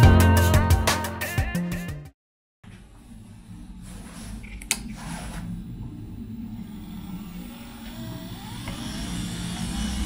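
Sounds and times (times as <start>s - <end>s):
wiper motor humming: 5.4s - 10.0s.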